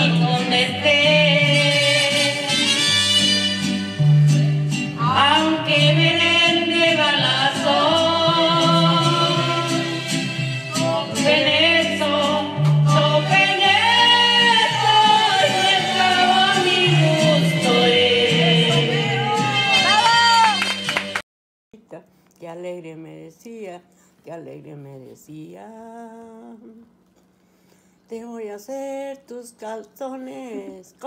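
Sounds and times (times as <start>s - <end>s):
woman singing into microphone: 0.0s - 2.6s, 5.0s - 10.0s, 10.7s - 20.6s, 22.4s - 26.9s, 28.1s - 31.0s
amplified musical accompaniment: 0.0s - 21.2s.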